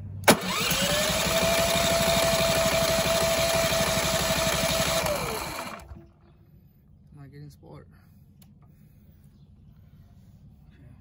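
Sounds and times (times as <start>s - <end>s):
generator engine cranking: 0.2s - 6.2s.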